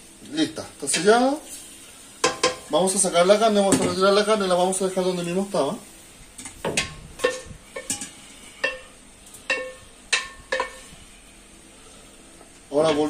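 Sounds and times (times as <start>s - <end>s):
metal cookware clinking: 2.2s - 2.7s, 6.4s - 10.9s.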